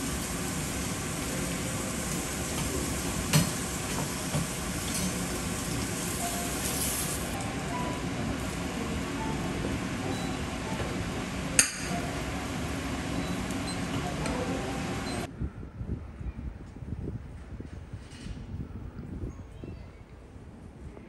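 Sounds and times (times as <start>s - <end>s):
kitchen griddle hiss and hum: 0.0s - 15.3s.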